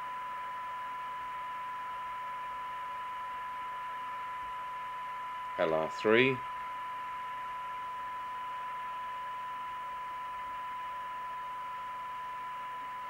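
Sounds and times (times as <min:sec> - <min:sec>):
steady test tone from loudspeaker: 0:00.0 - 0:13.0
radio receiver hiss: 0:05.4 - 0:07.6.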